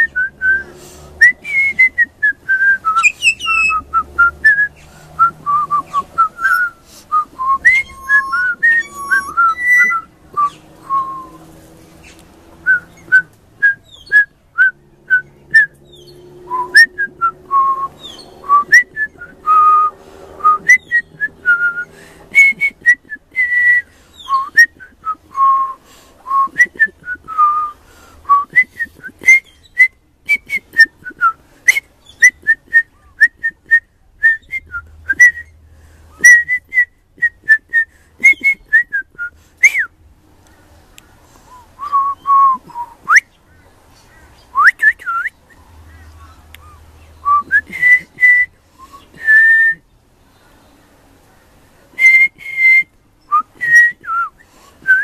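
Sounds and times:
bird singing fluted notes: 0.0 - 25.6.

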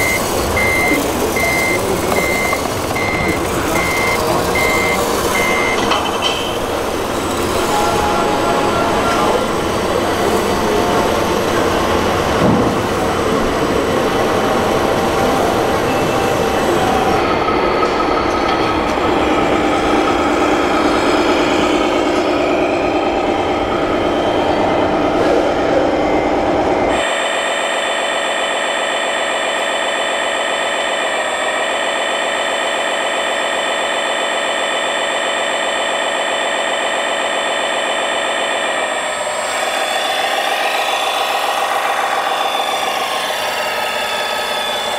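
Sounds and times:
electric motors whining and grinding: 0.0 - 44.9
high steady whine of held tones: 13.4 - 44.9.

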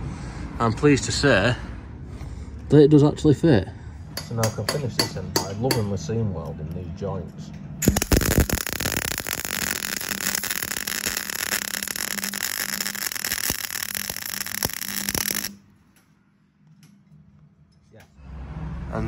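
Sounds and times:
welder arc crackling: 7.8 - 15.6.

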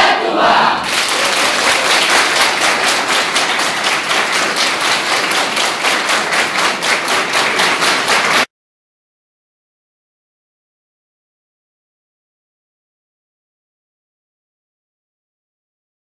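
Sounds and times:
audience applauding rhythmically: 0.0 - 8.5.

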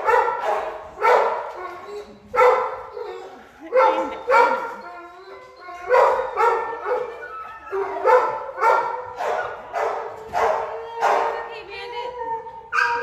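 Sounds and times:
dog barking: 0.0 - 1.6, 2.4 - 4.8, 5.9 - 7.2, 7.8 - 11.4, 12.7 - 13.0.

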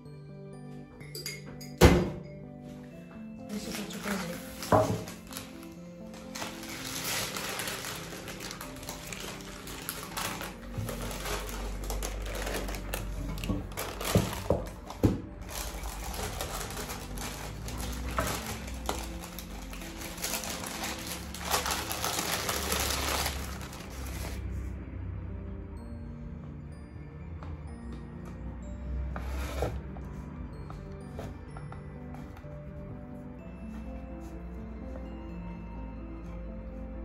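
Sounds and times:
baking paper rustling: 3.5 - 24.4.

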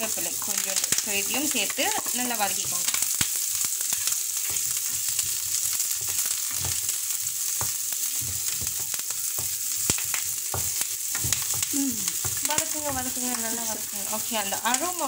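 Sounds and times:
onions sizzling in oil: 0.0 - 15.0
wooden spatula clicking on pan: 7.5 - 13.7.

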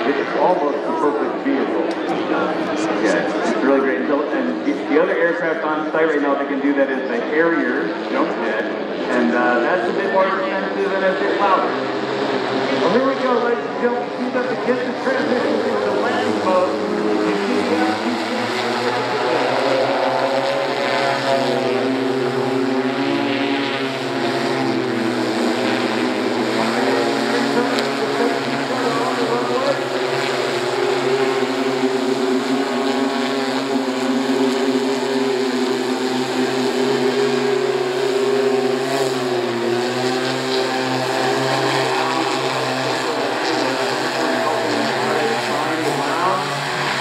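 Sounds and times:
aircraft propellers humming: 0.0 - 47.0.

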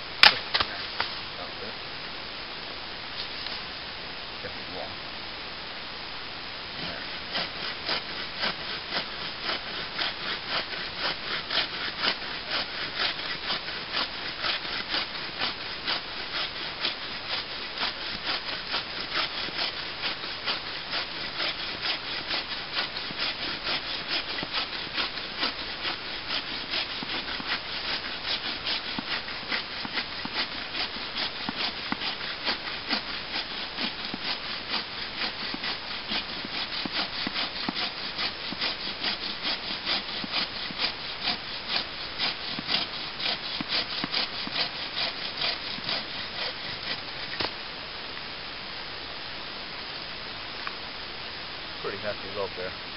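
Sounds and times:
hand saw cutting log: 6.8 - 47.5.

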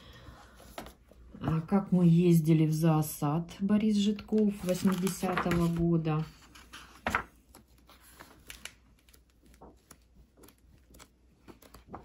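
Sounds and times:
book pages turning: 0.5 - 1.6, 4.1 - 12.0.

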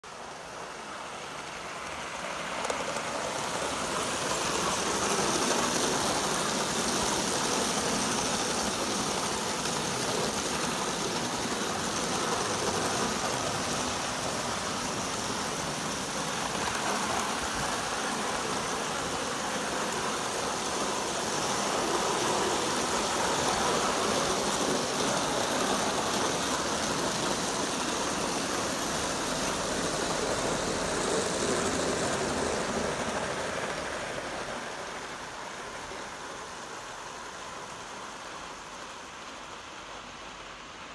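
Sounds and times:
steam train rumbling on track: 0.0 - 40.9.

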